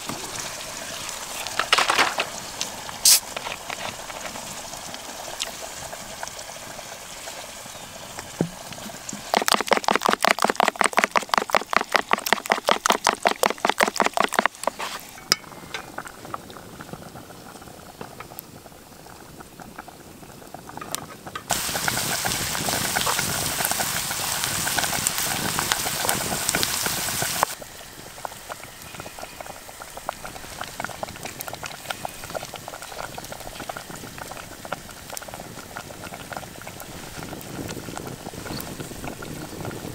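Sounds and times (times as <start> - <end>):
pot boiling and bubbling: 0.0 - 39.9
loud rush of bubbling: 8.3 - 14.8, 21.5 - 39.9.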